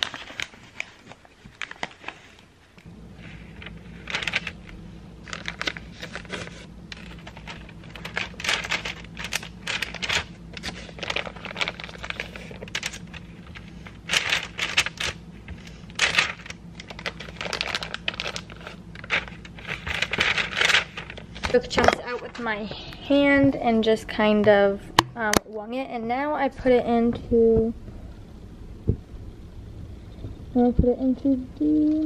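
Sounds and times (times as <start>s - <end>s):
plastic bag crinkling: 0.0s - 2.5s, 3.5s - 22.5s
parchment paper rustling: 0.0s - 23.4s
steady low hum: 0.0s - 32.0s.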